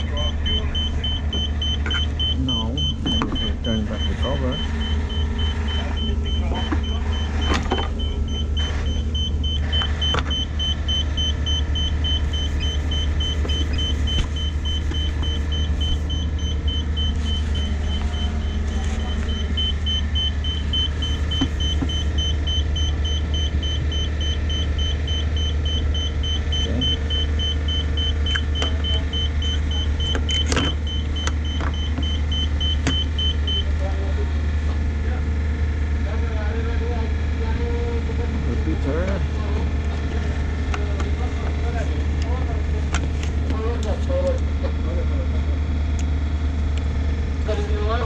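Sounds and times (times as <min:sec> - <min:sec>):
rapid high electronic beeping: 0:00.0 - 0:33.7
low machinery hum: 0:00.0 - 0:48.0.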